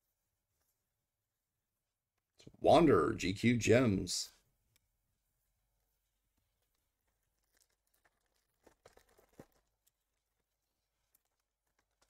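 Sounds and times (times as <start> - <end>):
trading cards crinkling and clicking: 6.6 - 12.0.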